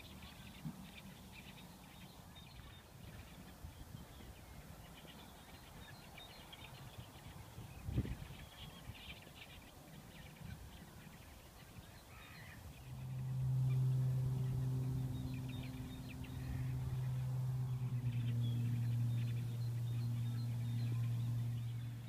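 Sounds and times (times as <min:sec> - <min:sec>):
distant bird calls: 0:00.0 - 0:22.0
low steady hum: 0:00.0 - 0:22.0
low outdoor rumble: 0:06.4 - 0:22.0.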